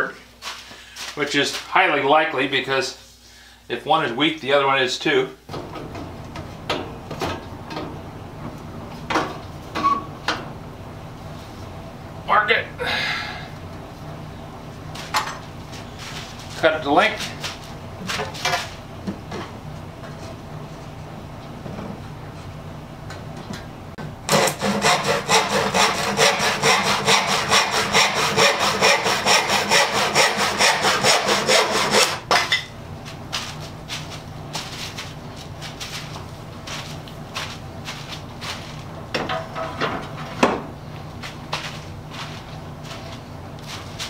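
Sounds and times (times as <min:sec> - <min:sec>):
hand saw cutting wood: 0:24.3 - 0:32.3.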